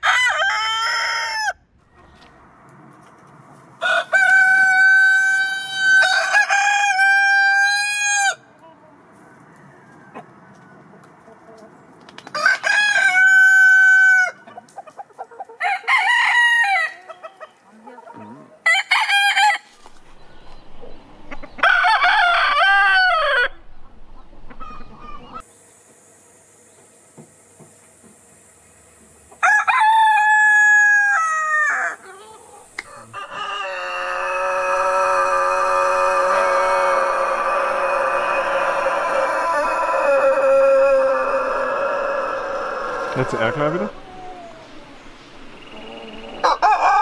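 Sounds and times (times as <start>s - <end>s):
roosters crowing: 0.0s - 1.7s, 3.7s - 11.3s, 12.2s - 14.6s, 15.3s - 17.6s, 18.6s - 20.1s, 21.2s - 23.8s, 29.3s - 47.0s.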